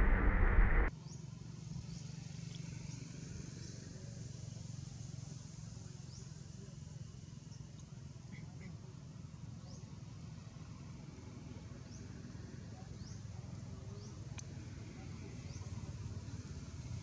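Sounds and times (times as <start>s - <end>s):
steady low hum: 0.0s - 0.9s.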